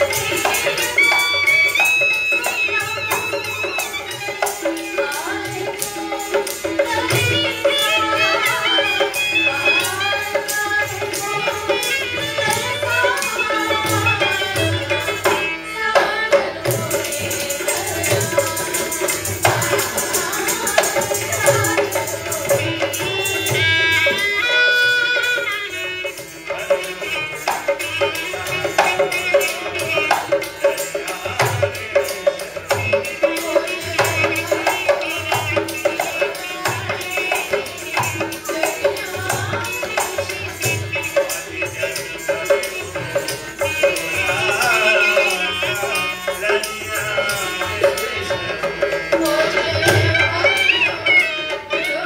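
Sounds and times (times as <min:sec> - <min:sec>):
hand drum beat: 0:00.0 - 0:24.2.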